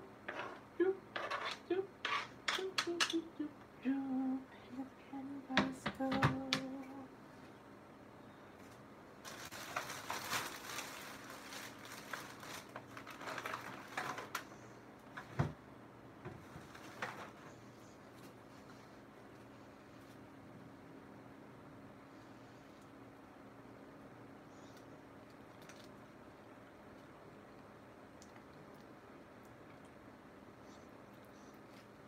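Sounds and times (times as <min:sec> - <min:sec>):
woman humming: 0:00.7 - 0:07.2.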